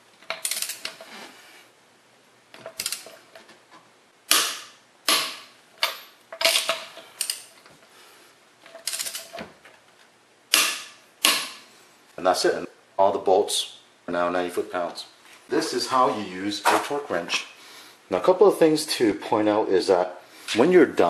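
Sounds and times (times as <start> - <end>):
torque wrench clicking: 0.3 - 0.9, 2.8 - 3.1, 4.3 - 7.5, 8.8 - 9.3.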